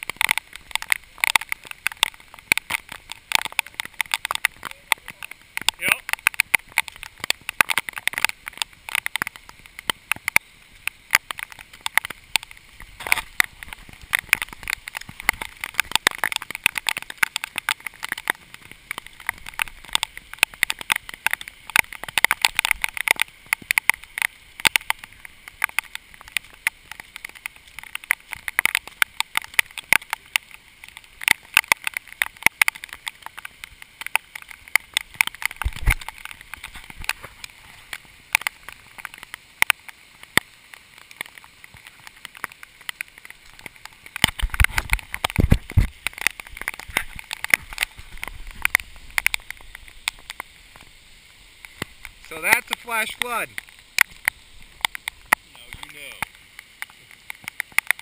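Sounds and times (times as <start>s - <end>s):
downpour hiss: 0.0s - 58.0s
raindrops pattering: 0.0s - 58.0s.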